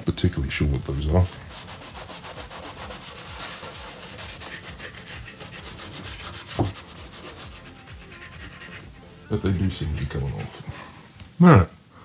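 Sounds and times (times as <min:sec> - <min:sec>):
cloth scrubbing cabinet: 0:00.9 - 0:10.9
thump: 0:06.6 - 0:06.8.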